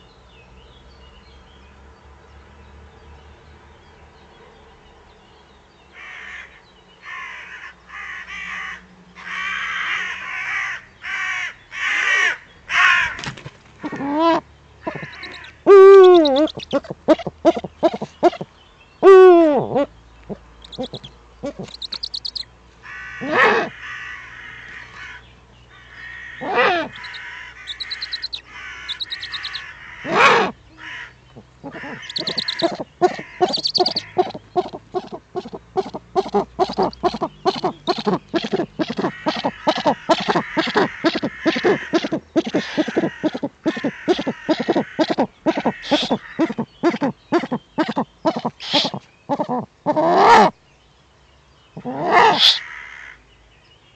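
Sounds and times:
crows cawing harshly: 6.0s - 13.2s, 14.9s - 16.6s, 22.8s - 25.2s, 25.8s - 48.8s, 51.8s - 53.2s.

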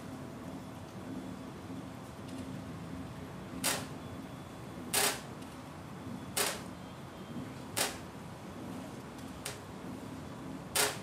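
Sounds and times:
low machinery hum: 0.0s - 11.0s.

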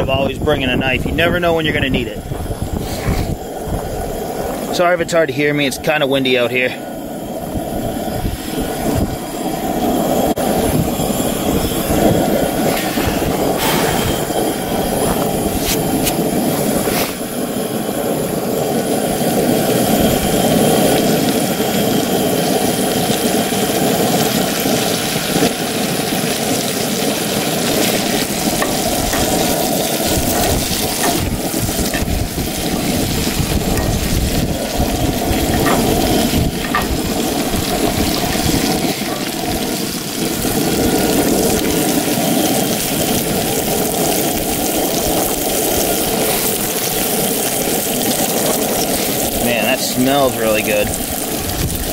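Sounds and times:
wind on microphone: 0.0s - 4.8s, 6.9s - 21.3s, 27.2s - 42.1s, 50.7s - 51.9s
fish sizzling in butter: 2.2s - 51.9s.

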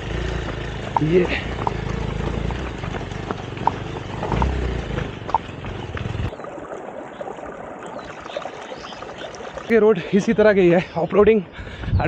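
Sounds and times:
motorcycle engine running: 0.0s - 6.3s
rocks knocking and rattling: 0.4s - 6.3s
stream trickling over stones: 0.8s - 10.8s.

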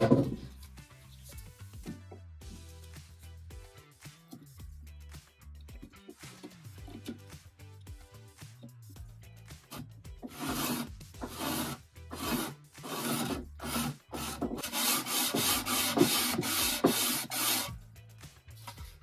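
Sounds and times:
sanding sponge scraping wood: 10.2s - 17.7s.

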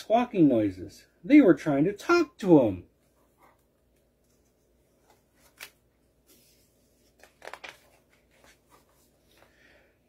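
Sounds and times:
book page turning: 3.0s - 9.5s.

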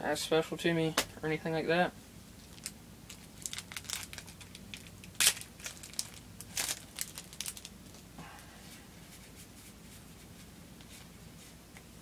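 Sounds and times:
foil wrapper crinkling: 2.4s - 8.0s.

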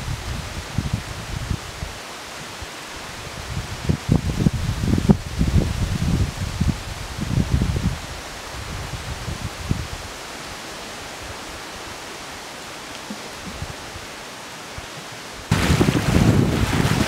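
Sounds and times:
wind buffeting microphone: 0.0s - 2.0s, 3.0s - 10.2s, 13.1s - 14.2s, 14.8s - 17.0s
wind through pine trees: 0.0s - 17.0s
lake water breaking against rocks: 15.5s - 17.0s.

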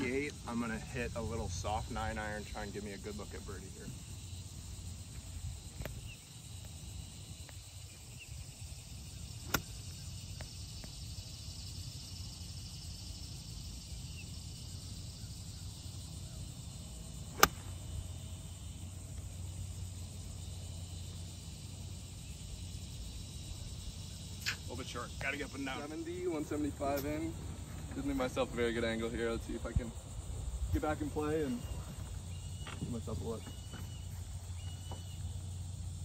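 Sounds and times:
insect chirring: 0.0s - 36.0s
golf club striking ball: 9.5s - 9.8s, 17.3s - 17.9s
low wind rumble: 25.0s - 33.6s.

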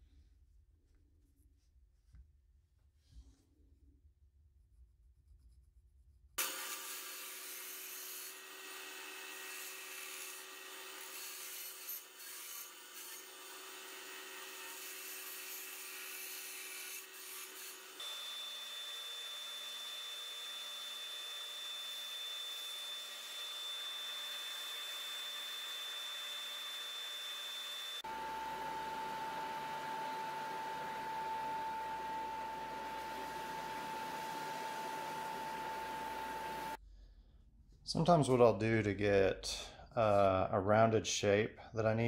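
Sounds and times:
scroll saw humming: 6.4s - 36.8s
belt sander whining: 17.9s - 36.8s.

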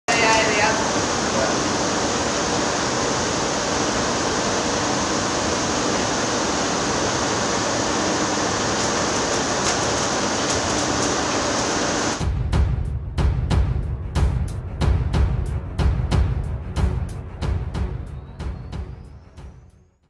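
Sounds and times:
welding arc hissing and crackling: 0.1s - 12.2s.

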